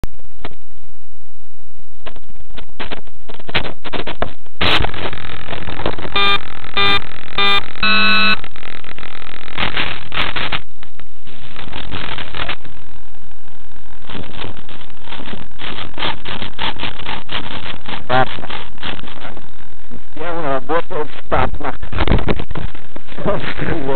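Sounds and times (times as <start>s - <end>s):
crackling and knocking of handling: 2.0s - 6.2s
short steady beeps: 6.2s - 8.4s.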